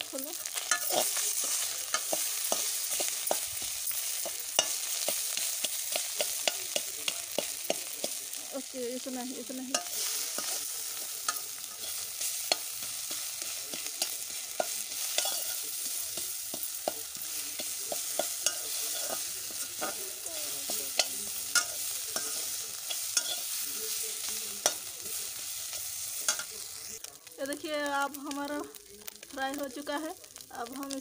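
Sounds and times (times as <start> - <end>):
fish sizzling in hot oil: 0.0 - 31.0
spoon scraping and clinking pan: 0.4 - 8.2, 9.7 - 23.6, 25.7 - 26.6.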